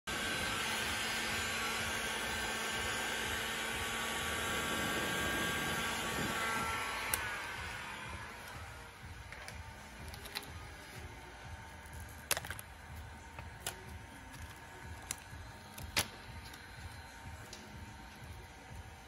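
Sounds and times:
heat gun blowing: 0:00.1 - 0:19.0.

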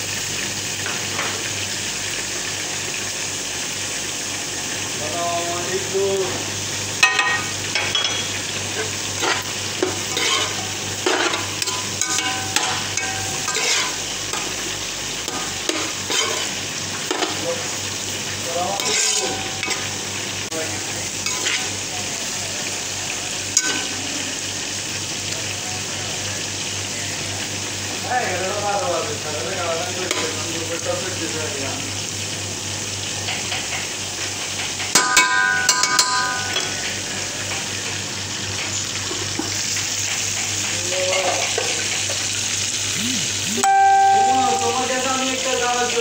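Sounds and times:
vegetables sizzling in a frying pan: 0:00.0 - 0:46.0
spatula scraping a pan: 0:09.1 - 0:14.0, 0:15.7 - 0:17.4, 0:18.8 - 0:19.8, 0:21.3 - 0:21.8.

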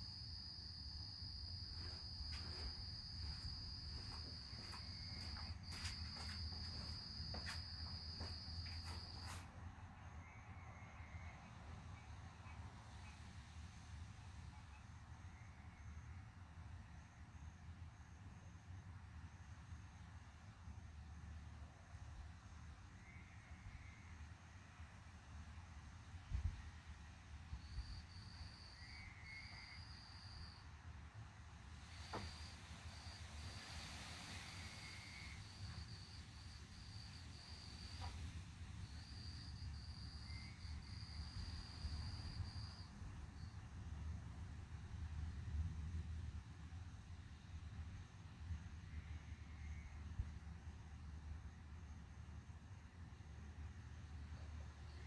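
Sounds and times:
cricket trilling: 0:00.0 - 0:09.4, 0:38.8 - 0:43.6
faint low rumble: 0:00.0 - 0:17.1.

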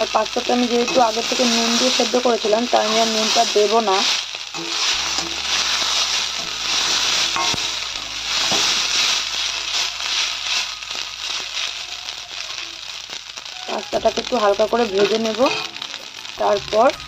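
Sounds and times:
pasta sizzling in hot oil: 0:00.0 - 0:17.0
metal spatula scraping pan: 0:04.5 - 0:09.3.

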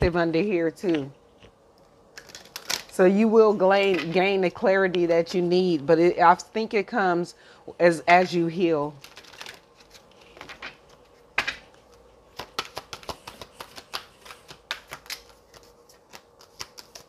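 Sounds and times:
faint steady hum: 0:00.0 - 0:17.0
cards clicking and tapping: 0:09.1 - 0:17.0.

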